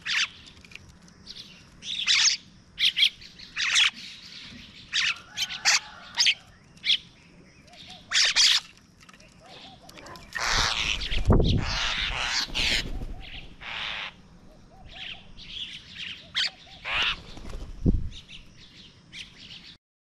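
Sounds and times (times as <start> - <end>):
bird distress squawks: 7.9 - 8.6, 9.4 - 15.3, 16.1 - 17.3.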